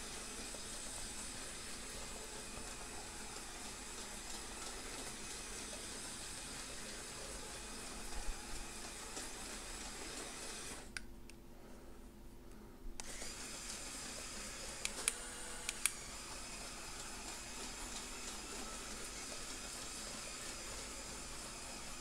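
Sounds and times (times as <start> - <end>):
toy motor and gear whir: 13.0 - 22.0
light clicks: 14.8 - 16.0.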